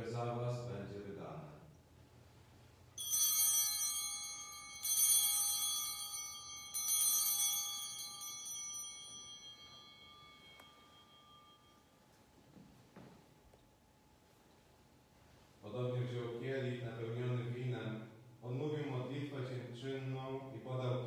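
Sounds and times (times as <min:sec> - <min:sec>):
altar bells ringing: 0:03.0 - 0:12.5.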